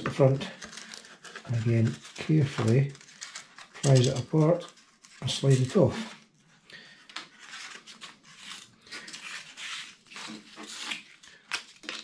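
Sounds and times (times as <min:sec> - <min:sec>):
foam board rubbing and scraping: 0:07.3 - 0:11.1.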